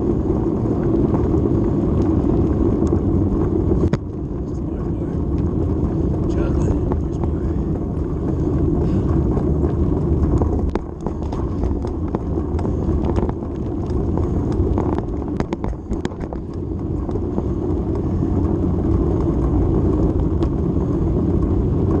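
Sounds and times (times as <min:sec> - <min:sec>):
wind rush from riding: 0:00.0 - 0:22.0
clicks and rattles: 0:10.3 - 0:17.2.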